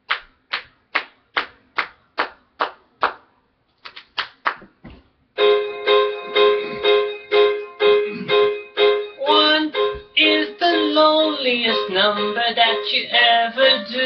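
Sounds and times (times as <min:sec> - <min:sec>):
keyboard chords: 0:05.4 - 0:14.0.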